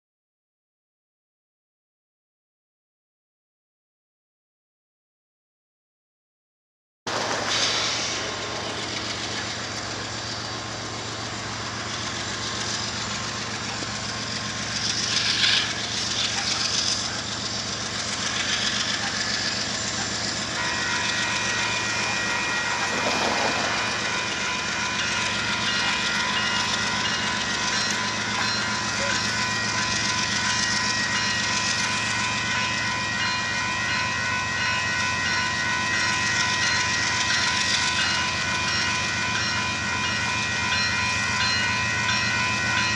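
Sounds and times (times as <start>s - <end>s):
diesel locomotives rumbling: 7.1s - 42.9s
crossing warning bell ringing: 8.6s - 42.9s.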